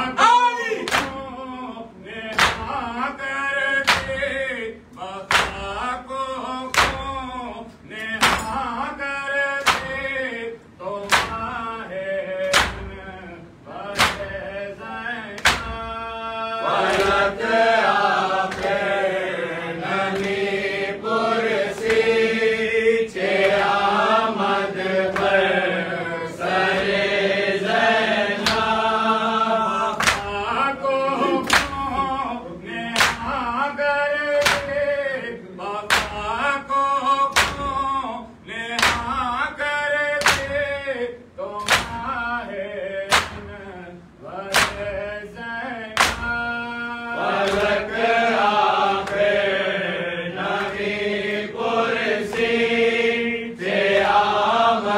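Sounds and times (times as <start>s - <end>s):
men chanting a lament: 0.0s - 54.9s
hands slapping bare chests: 2.3s - 2.8s, 3.8s - 4.3s, 5.3s - 5.8s, 6.7s - 7.1s, 8.2s - 8.5s, 9.6s - 10.1s, 11.0s - 11.5s, 12.4s - 13.0s, 14.0s - 14.4s, 15.4s - 15.8s, 18.5s - 18.8s, 20.2s - 20.4s, 29.9s - 30.4s, 31.4s - 31.9s, 33.0s - 33.4s, 34.4s - 34.8s, 35.9s - 36.3s, 37.3s - 37.8s, 38.8s - 39.2s, 40.2s - 40.6s, 41.6s - 42.1s, 43.1s - 43.5s, 44.5s - 44.9s, 46.0s - 46.4s, 47.4s - 47.8s.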